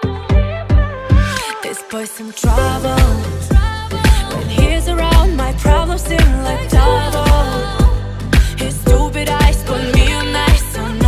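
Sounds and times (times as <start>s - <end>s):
pop song with singing: 0.0s - 11.0s
deep kick drums: 2.5s - 10.8s.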